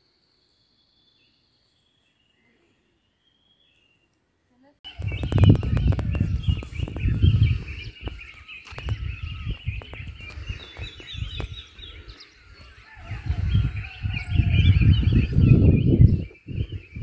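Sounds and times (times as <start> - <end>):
small birds chirping: 0.0 - 17.0
low microphone rumble: 4.9 - 8.2, 13.0 - 17.0.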